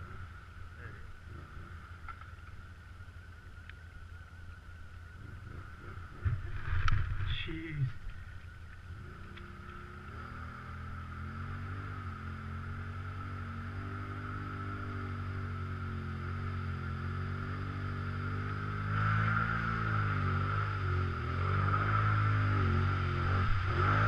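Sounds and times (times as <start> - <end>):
atv engine idling: 0.0 - 14.0
atv engine revving through mud: 9.0 - 24.0.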